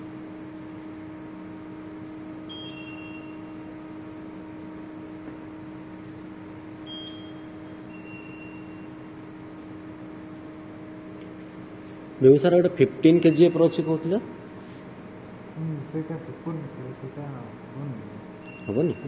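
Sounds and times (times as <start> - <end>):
electric hum: 0.0 - 19.0
short electronic beeps: 2.5 - 3.5, 6.9 - 8.9, 13.2 - 14.1, 18.4 - 19.0.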